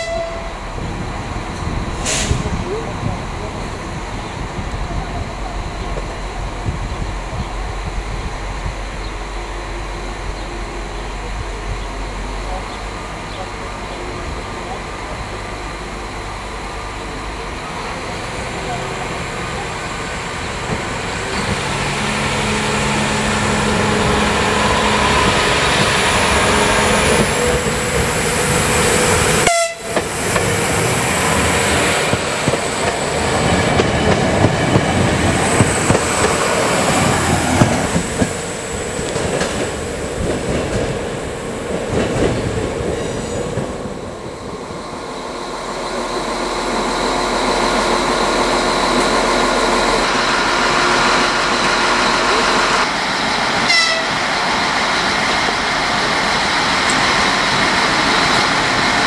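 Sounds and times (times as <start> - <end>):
railbus engine hum: 0.0 - 59.0.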